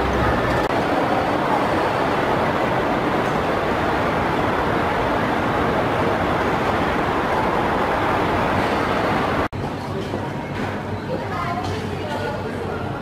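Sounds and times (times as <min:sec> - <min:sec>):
escalator droning: 0:00.0 - 0:09.5.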